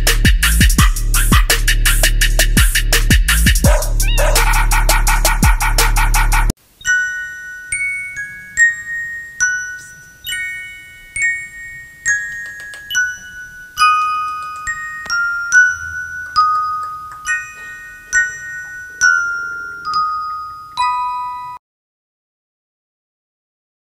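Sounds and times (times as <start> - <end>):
bell-like melody: 6.7 - 21.6.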